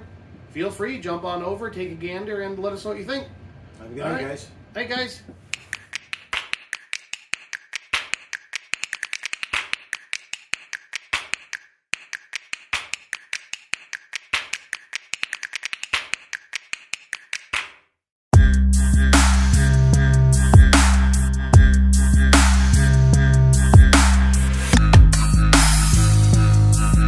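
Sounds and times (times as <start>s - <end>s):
sharp irregular clicks: 5.5s - 17.7s
electronic music with heavy bass: 18.4s - 27.0s.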